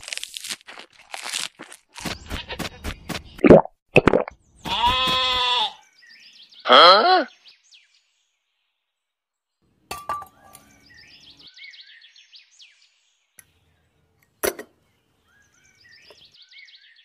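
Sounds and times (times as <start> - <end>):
birds chirping: 2.0 - 3.5, 4.3 - 17.0
metal bucket clinking: 9.9 - 10.6.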